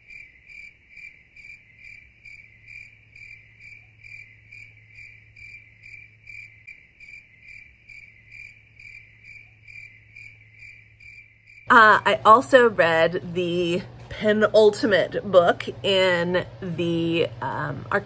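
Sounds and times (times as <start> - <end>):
crickets chirping: 0.0 - 11.8.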